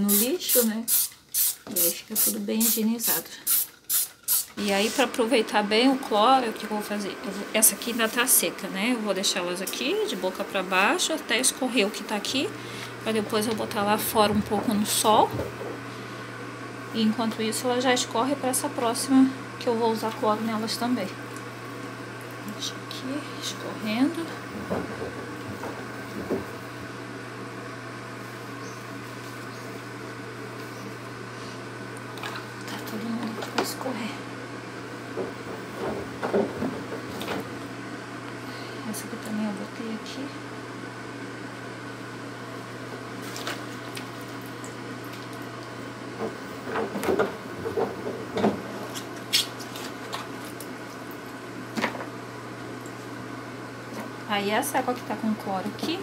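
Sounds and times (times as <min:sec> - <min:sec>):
low electrical hum: 0:00.0 - 0:56.0.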